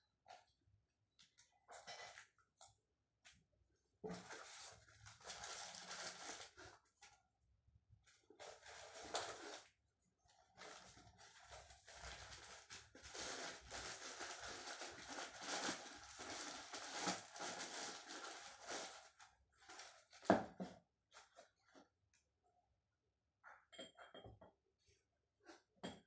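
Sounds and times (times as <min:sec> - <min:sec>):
paper and plastic wrapping crinkling: 0:04.1 - 0:07.1, 0:08.4 - 0:09.7, 0:10.6 - 0:20.4.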